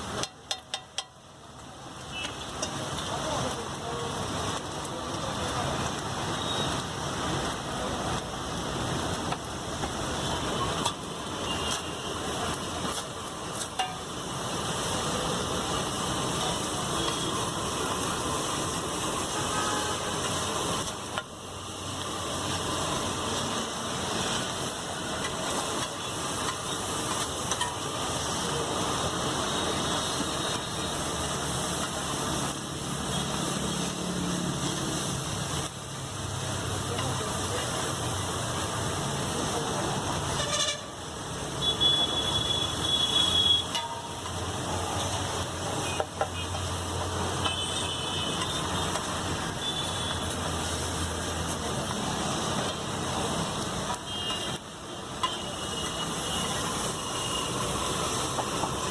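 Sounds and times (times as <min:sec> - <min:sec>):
frying sizzle: 0:00.0 - 0:58.9
spatula clinking against metal: 0:00.2 - 0:01.2.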